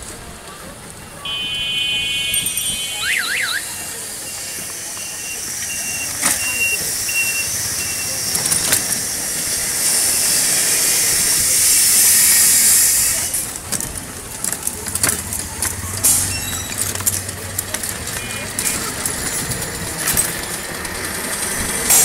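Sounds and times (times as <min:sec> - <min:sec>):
street traffic rush: 0:00.0 - 0:22.0
clicks and rattles: 0:13.2 - 0:22.0.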